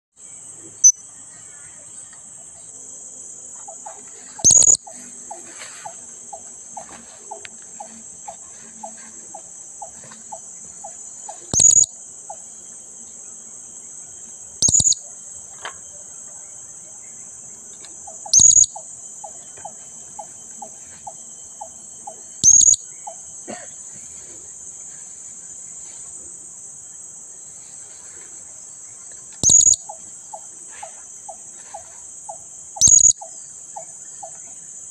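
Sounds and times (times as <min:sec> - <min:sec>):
insects droning: 0:00.2 - 0:34.9
rapid lower bird notes: 0:04.4 - 0:05.5, 0:11.5 - 0:11.9, 0:14.6 - 0:15.0, 0:22.4 - 0:22.8, 0:29.4 - 0:29.9.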